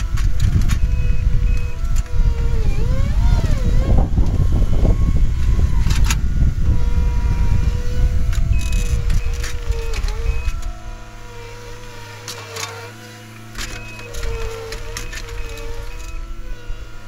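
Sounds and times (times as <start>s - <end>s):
scattered clicks: 0.0s - 3.6s, 5.4s - 6.2s, 8.3s - 10.8s, 12.2s - 16.2s
track loader diesel engine: 0.0s - 17.0s.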